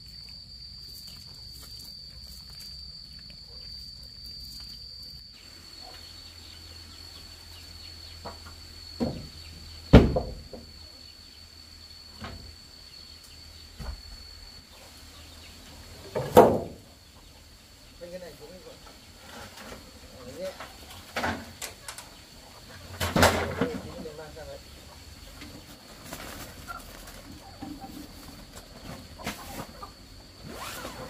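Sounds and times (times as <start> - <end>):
high insect drone: 0.0 - 31.0
knocks and thumps of wood: 9.9 - 10.7, 16.1 - 16.8.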